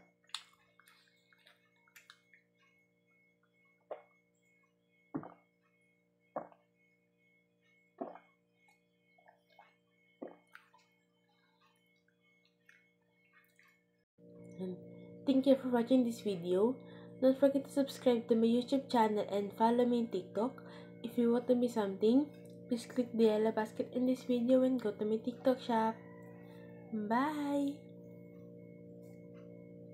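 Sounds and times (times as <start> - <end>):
low steady hum: 0.0 - 29.9
person gulping water: 3.9 - 4.2, 5.2 - 5.5, 8.0 - 8.4, 9.2 - 10.9.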